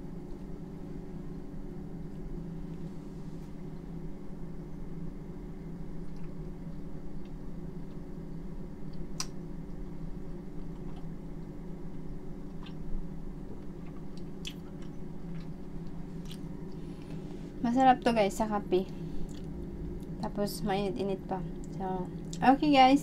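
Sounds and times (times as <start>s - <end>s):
steady low hum: 0.0s - 23.0s
person chewing soft bread: 6.0s - 17.2s, 19.2s - 20.2s.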